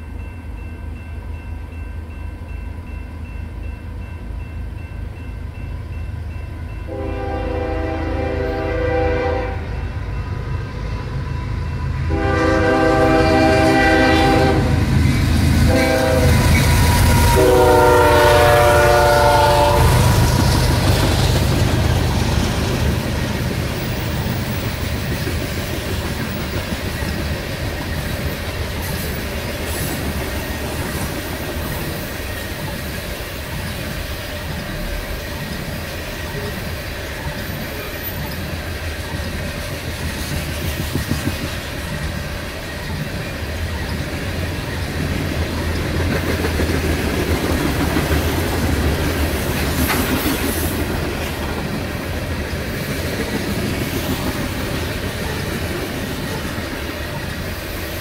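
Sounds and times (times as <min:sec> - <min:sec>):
train wheels rumbling and clattering: 0:05.8 - 0:58.0
train air horn: 0:06.9 - 0:10.0, 0:12.0 - 0:14.9, 0:15.6 - 0:21.0.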